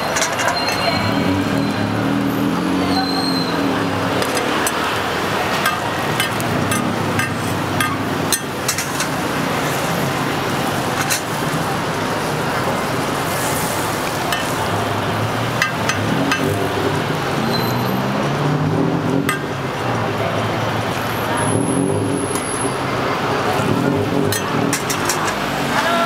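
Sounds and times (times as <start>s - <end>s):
road traffic: 0.0s - 26.0s
metal spatula tapping pan: 5.6s - 9.2s, 14.3s - 14.6s, 15.6s - 16.6s.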